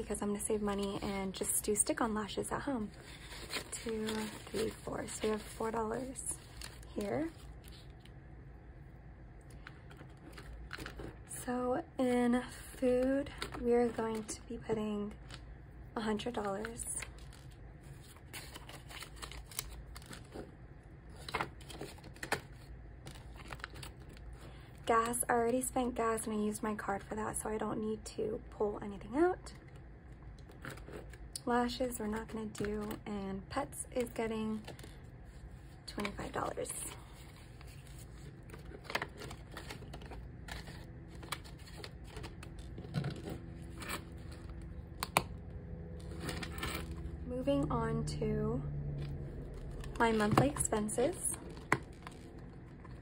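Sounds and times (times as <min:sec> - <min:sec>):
paper and vinyl rustling: 0:00.0 - 0:08.3, 0:09.4 - 0:27.4, 0:29.0 - 0:48.0, 0:48.8 - 0:53.0
banknotes rustling: 0:02.4 - 0:08.1, 0:16.1 - 0:20.5, 0:34.5 - 0:45.0.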